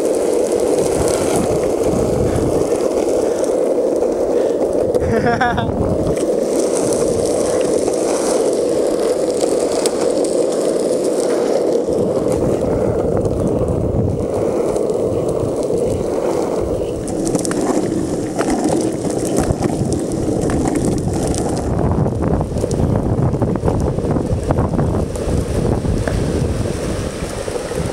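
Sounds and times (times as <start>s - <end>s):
wheels rolling on rough asphalt: 0.0s - 27.9s
small clicks from grit: 14.5s - 21.7s.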